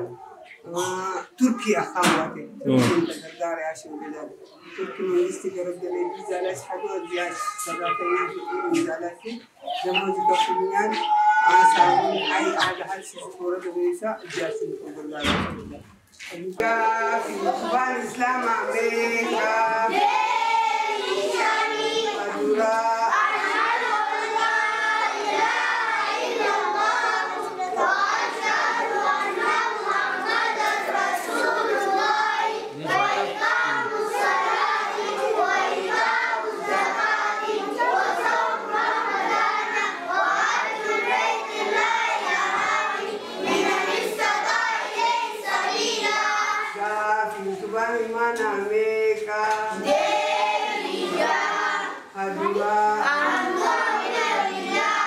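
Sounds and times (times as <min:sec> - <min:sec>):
children singing in chorus: 0:04.3 - 0:13.2, 0:16.6 - 0:55.0.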